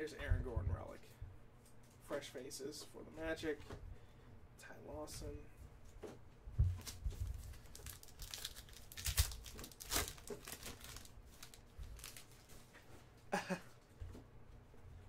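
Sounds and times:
plastic wrapper crinkling and tearing: 0:06.8 - 0:12.6.

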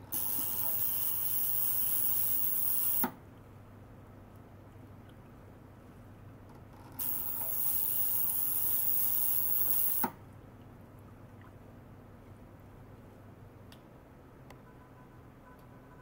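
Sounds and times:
ultrasonic cleaner hissing: 0:00.1 - 0:03.1, 0:07.0 - 0:10.1.

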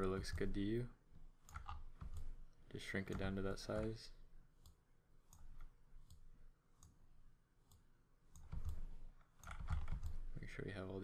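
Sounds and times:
computer mouse clicks: 0:01.4 - 0:02.4, 0:04.6 - 0:07.0, 0:07.6 - 0:10.3.

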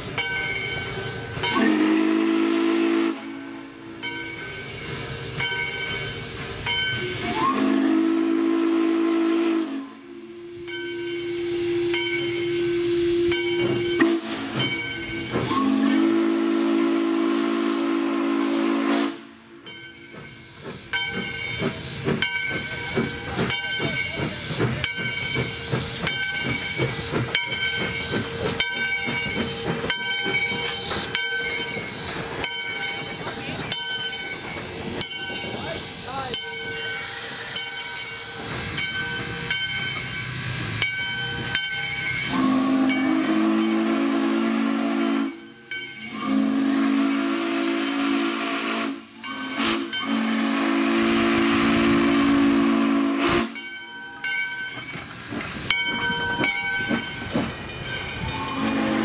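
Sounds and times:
steam hiss: 0:00.0 - 0:53.6
rhythmic locomotive exhaust: 0:00.0 - 0:59.0
steam locomotive whistle blasts: 0:00.8 - 0:19.7, 0:39.4 - 0:53.8, 0:58.1 - 0:59.0.

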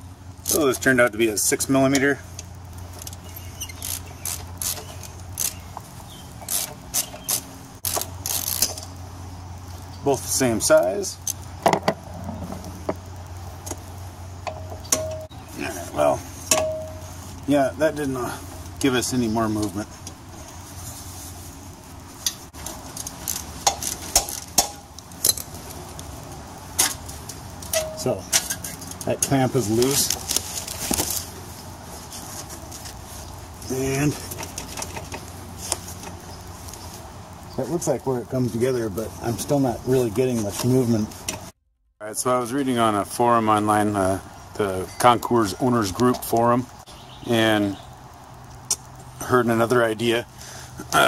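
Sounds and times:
steady low hum: 0:00.0 - 0:45.8
hand tool metallic clicks and scrapes: 0:01.9 - 0:05.8, 0:06.4 - 0:09.0, 0:22.2 - 0:26.1, 0:26.7 - 0:31.4
metal clamp and bolts clinking: 0:27.7 - 0:29.4.

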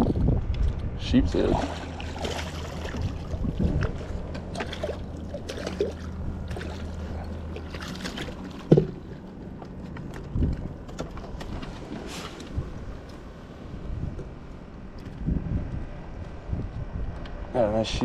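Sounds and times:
fish splashing: 0:01.5 - 0:09.3
knocks on boat: 0:08.5 - 0:09.1.

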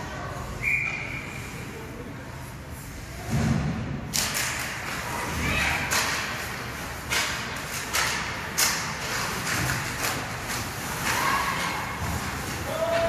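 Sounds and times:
hockey sticks and puck clacking: 0:03.3 - 0:13.0
skates scraping on ice: 0:04.8 - 0:13.0.

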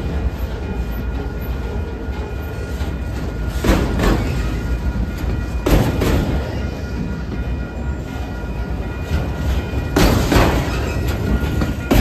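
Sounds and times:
steel wheels rumbling on rails: 0:00.0 - 0:12.0
wheels clacking over rail joint: 0:09.0 - 0:12.0.

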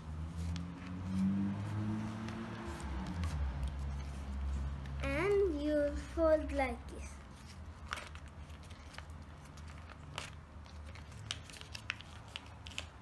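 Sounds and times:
paper folding and crinkling: 0:07.2 - 0:13.0.

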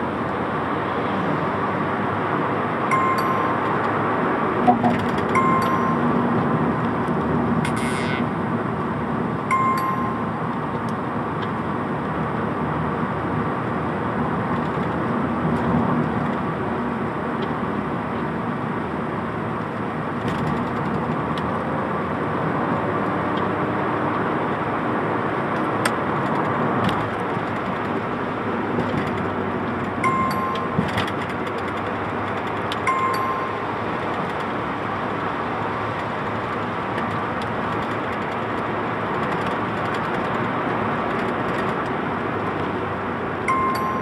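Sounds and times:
car engine and tyre noise: 0:00.0 - 0:44.0
short electronic beep: 0:02.9 - 0:03.6, 0:04.6 - 0:06.1.

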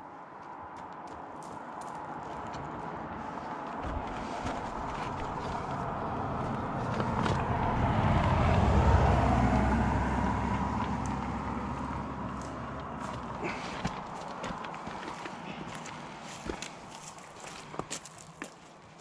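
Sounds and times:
vehicle engine rumble: 0:00.5 - 0:18.4
tyre noise: 0:02.2 - 0:09.0, 0:10.5 - 0:18.7.

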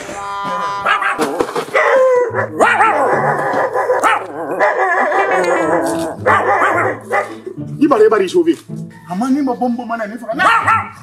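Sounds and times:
wavering howling cries: 0:00.8 - 0:07.6
background music with low bass: 0:02.0 - 0:11.0.

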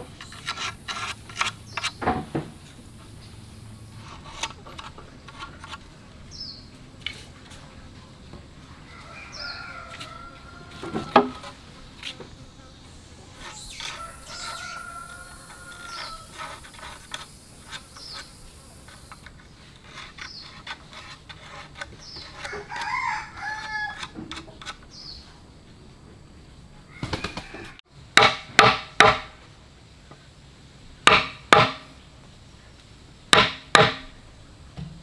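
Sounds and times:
rooster crowing: 0:08.8 - 0:11.6, 0:13.9 - 0:16.6, 0:22.4 - 0:24.2, 0:26.9 - 0:27.8
loud sharp knocks: 0:28.2 - 0:29.4, 0:31.1 - 0:31.9, 0:33.3 - 0:34.1.

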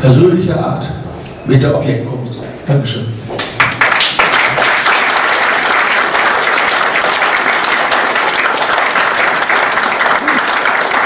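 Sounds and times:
audience applause: 0:03.4 - 0:11.0.

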